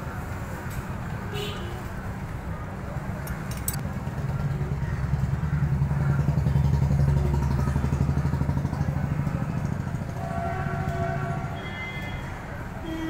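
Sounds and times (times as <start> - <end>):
motorcycle engine running: 3.3 - 10.0.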